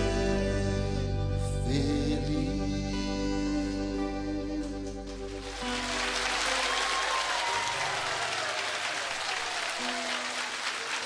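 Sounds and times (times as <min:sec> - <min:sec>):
people clapping: 0:05.1 - 0:11.0.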